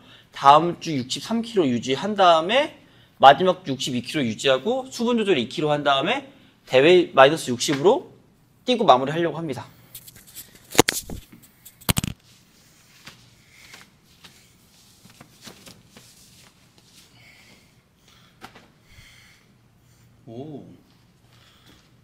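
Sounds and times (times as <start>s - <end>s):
clip-on microphone being rubbed: 9.9s - 13.2s
fabric rustling: 10.0s - 17.2s.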